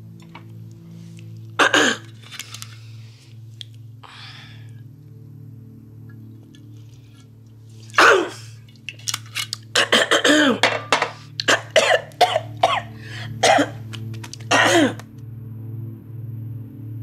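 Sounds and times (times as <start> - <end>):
low steady drone: 0.0 - 17.0
woman coughing and spluttering: 1.6 - 2.1, 8.0 - 8.6, 9.7 - 13.8, 14.4 - 15.0.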